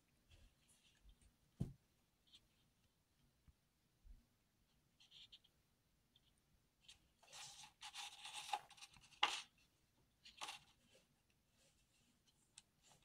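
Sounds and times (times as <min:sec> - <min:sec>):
paper pages rustling: 0:07.2 - 0:09.5, 0:10.2 - 0:10.9.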